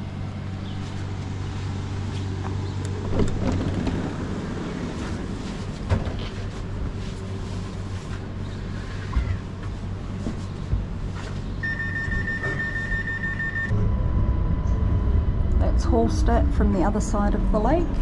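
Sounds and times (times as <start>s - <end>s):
train interior rumbling hum: 0.0s - 18.0s
high electronic beeping: 11.6s - 13.8s.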